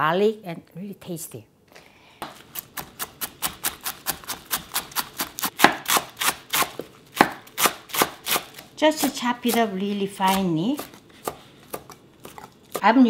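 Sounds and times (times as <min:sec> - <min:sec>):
knife chopping on wooden board: 0:02.2 - 0:08.4, 0:09.0 - 0:12.8.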